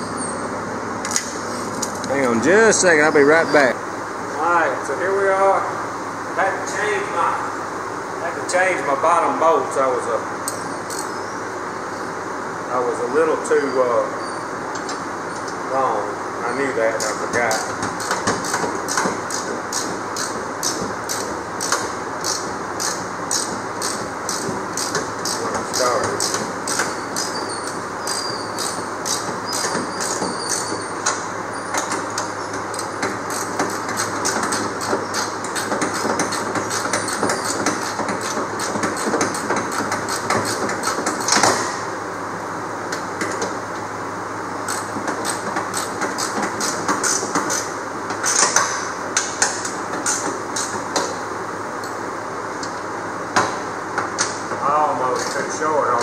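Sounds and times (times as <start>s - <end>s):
ratchet wrench clicking: 10.5s - 11.1s, 17.0s - 30.6s, 32.2s - 41.5s, 44.7s - 48.6s.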